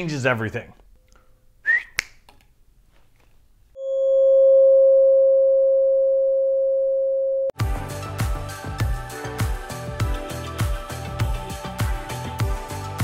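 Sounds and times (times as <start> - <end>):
tuning fork ringing: 3.8 - 7.6.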